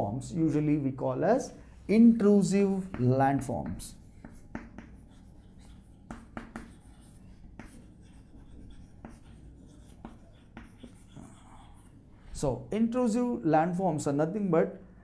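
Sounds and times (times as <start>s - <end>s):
chalk tapping on chalkboard: 2.5s - 11.2s
chalk scratching on chalkboard: 2.5s - 12.0s.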